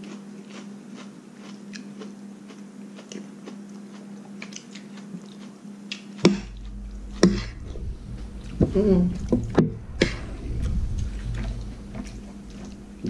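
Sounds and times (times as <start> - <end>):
close chewing and mouth clicks: 0.0 - 6.4
steady low hum: 4.2 - 13.0.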